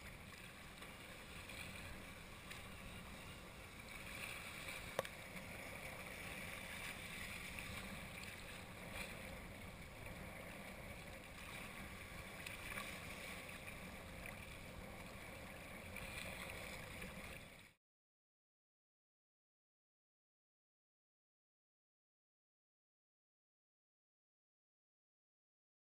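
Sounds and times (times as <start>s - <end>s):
choppy water splashing: 0.0s - 17.8s
wind: 0.0s - 17.8s.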